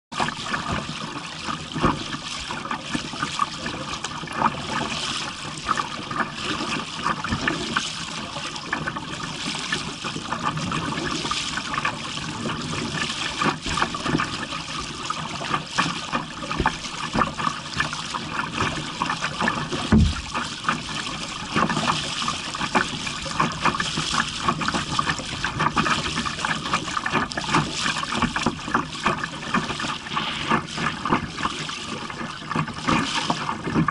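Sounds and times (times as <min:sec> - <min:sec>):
water splashing against kayak hull: 0:00.2 - 0:33.9.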